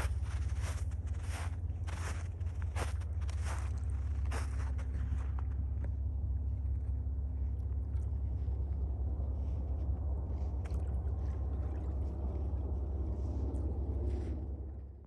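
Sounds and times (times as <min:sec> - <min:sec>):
footstep crunching in snow: 0:00.0 - 0:06.8
wind rumble on microphone: 0:00.0 - 0:15.0.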